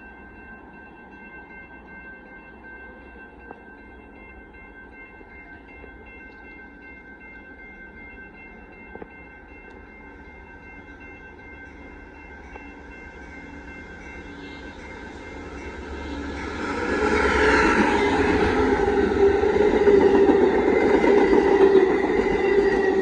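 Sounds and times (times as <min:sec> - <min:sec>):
crossing warning bell ringing: 0:00.0 - 0:23.0
diesel locomotive rumble: 0:11.8 - 0:23.0.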